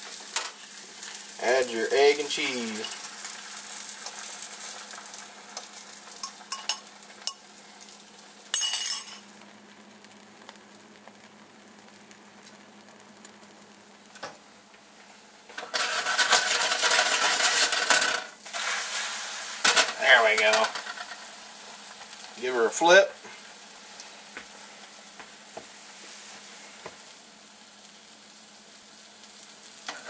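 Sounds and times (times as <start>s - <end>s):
egg sizzling in skillet: 0.0s - 30.0s
skillet scraping and rattling: 15.5s - 18.3s.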